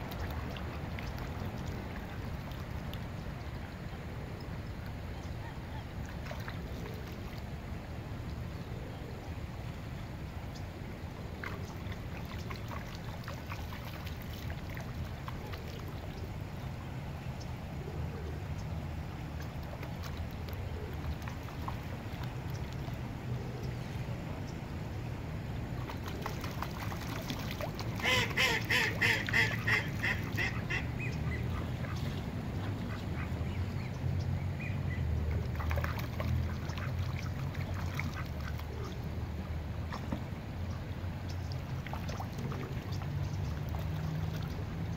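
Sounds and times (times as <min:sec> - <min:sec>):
duck quacking: 0:28.0 - 0:31.1.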